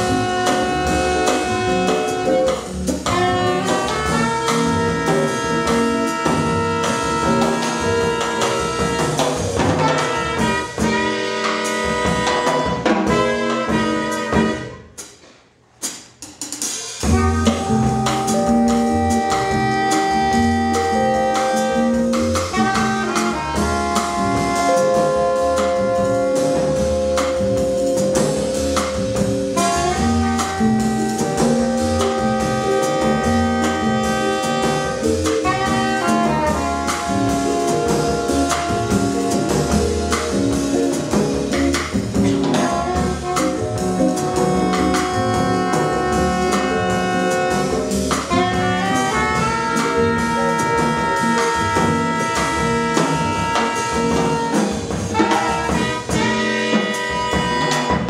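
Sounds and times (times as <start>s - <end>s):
soprano saxophone: 0.0s - 9.3s, 17.1s - 26.8s, 29.5s - 40.6s, 42.3s - 58.0s
upright bass: 0.0s - 14.8s, 17.0s - 58.0s
trumpet: 0.0s - 15.2s, 16.9s - 58.0s
drum kit cymbals and drums: 0.0s - 58.0s.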